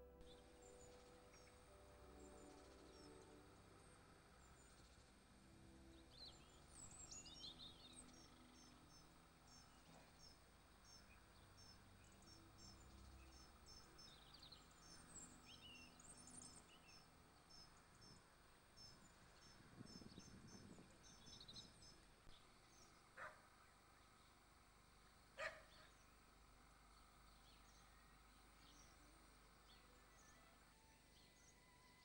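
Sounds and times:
small bird chirping: 6.0 - 30.5.

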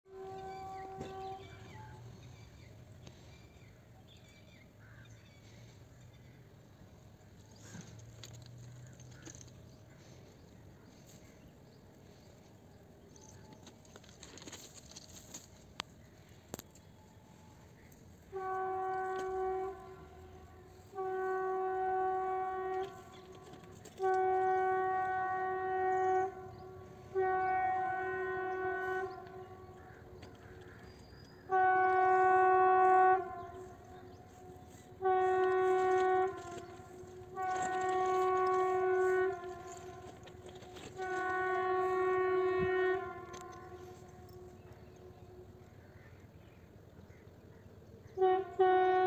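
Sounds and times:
locomotive air horn blasts: 0.0 - 3.8, 7.4 - 10.3, 10.9 - 45.8, 48.0 - 49.0.

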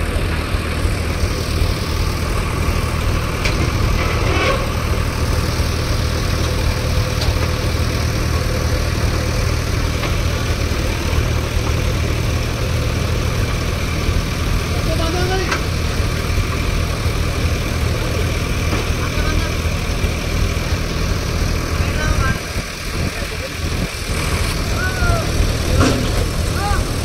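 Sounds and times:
diesel engine running: 0.0 - 27.0.

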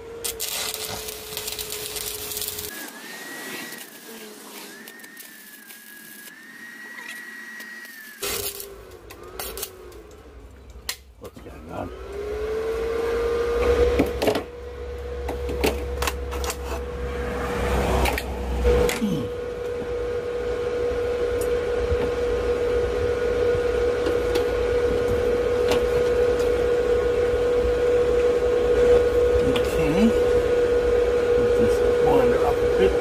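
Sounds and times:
power tool motor whining: 0.0 - 10.4.

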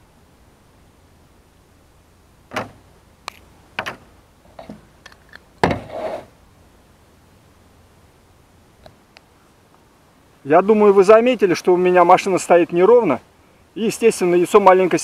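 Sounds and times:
knocks and clatters on metal roof: 2.5 - 2.8.

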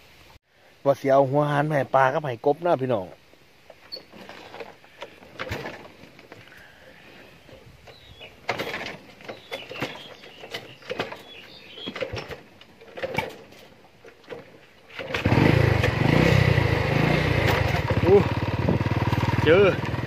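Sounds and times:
knocks and rustles: 3.7 - 6.6, 7.5 - 15.2
motorcycle engine running: 15.1 - 20.0.

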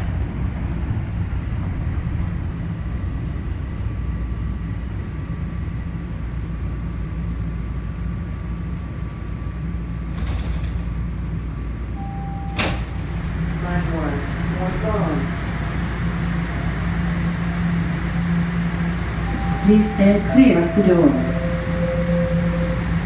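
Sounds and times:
subway car rumble: 0.0 - 23.0
brief tone: 5.4 - 6.3, 12.0 - 12.8, 19.3 - 23.0
door release clunk: 12.5 - 13.1.

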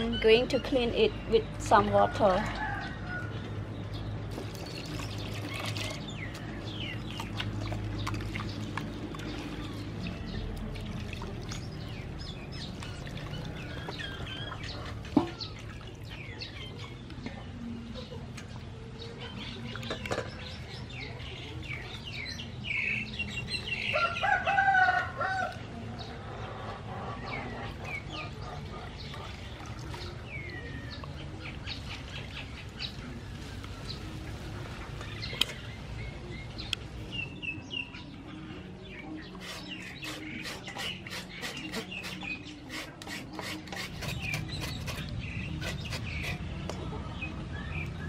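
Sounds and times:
small birds chirping: 2.5 - 25.4, 26.0 - 48.0
chickens clucking: 13.4 - 21.9, 25.9 - 32.1
rooster crowing: 23.9 - 25.6.

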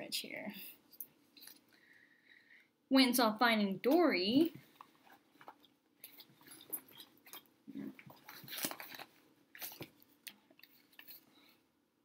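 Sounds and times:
paper and cardboard crinkling: 4.7 - 11.3.

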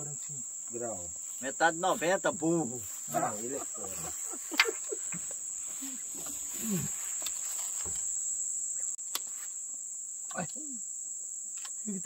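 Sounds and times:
night insects chirring: 0.0 - 12.0
faint voices: 1.9 - 7.1.

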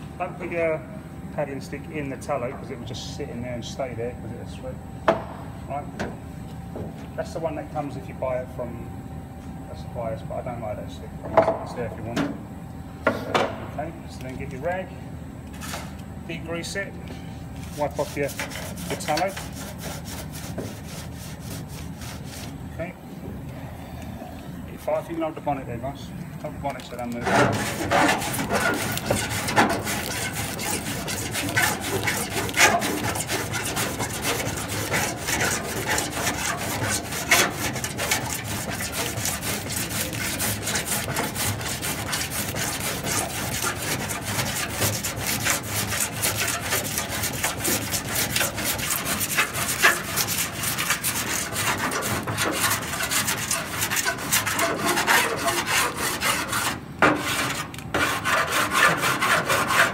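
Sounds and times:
file rasping on metal: 17.7 - 22.6, 27.2 - 59.9.

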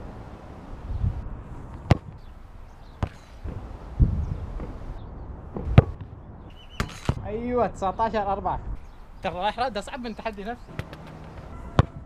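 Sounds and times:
football kicked barefoot: 3.0 - 3.6.

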